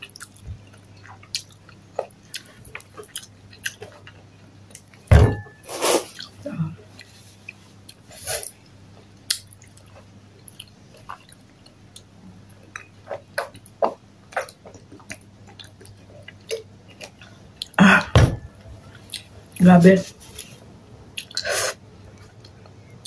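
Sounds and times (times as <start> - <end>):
chewing with wet mouth clicks: 0.0 - 5.0, 9.2 - 17.8, 18.9 - 19.6, 21.2 - 21.5
loud thump: 5.1 - 5.6, 18.1 - 18.5.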